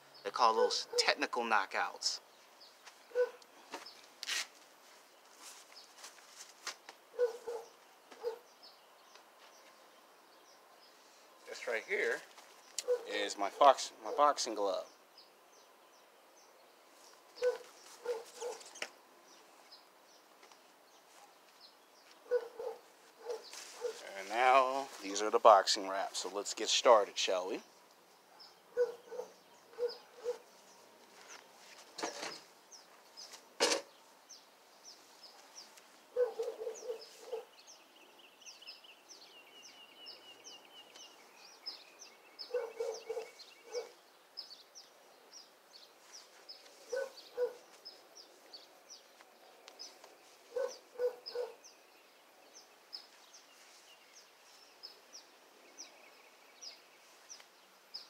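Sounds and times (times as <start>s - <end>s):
small birds chirping: 0.0s - 58.0s
dog barking: 0.6s - 1.2s, 3.1s - 3.4s, 7.2s - 8.4s, 12.8s - 13.1s, 17.4s - 18.6s, 22.2s - 24.1s, 28.3s - 30.5s, 36.1s - 37.5s, 42.5s - 44.0s, 46.9s - 47.6s, 50.5s - 51.6s.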